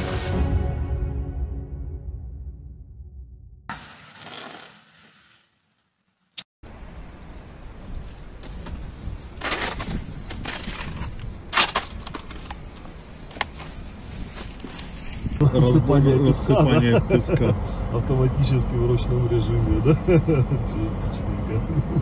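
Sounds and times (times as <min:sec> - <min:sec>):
outdoor noise: 0:03.6 - 0:22.0
ice cracking: 0:03.7 - 0:05.4, 0:08.6 - 0:13.6.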